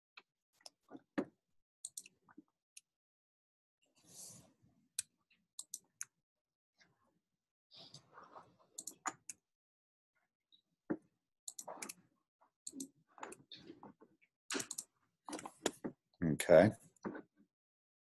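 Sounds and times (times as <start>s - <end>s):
faint computer mouse clicks: 14.5s - 15.5s.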